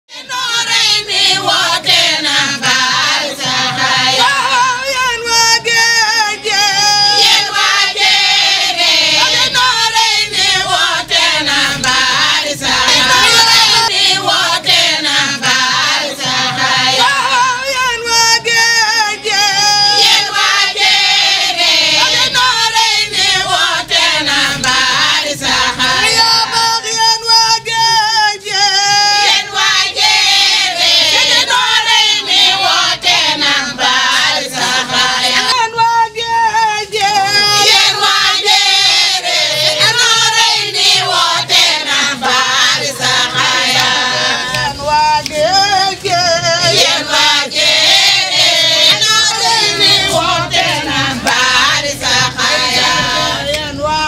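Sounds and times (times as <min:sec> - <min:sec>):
women's choir singing: 0:00.1 - 0:54.0.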